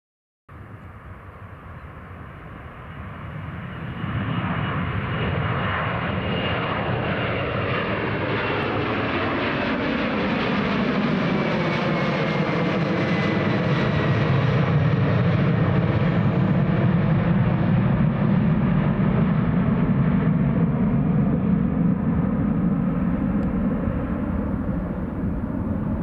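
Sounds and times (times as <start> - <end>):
jet engines roaring overhead: 0.6 - 26.0
high engine whine: 14.2 - 26.0.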